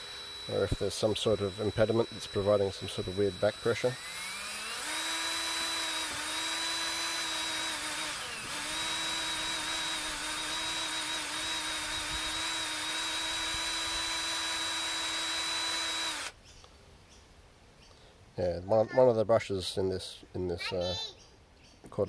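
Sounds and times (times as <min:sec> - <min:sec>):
cordless drill whining: 0:00.0 - 0:16.4.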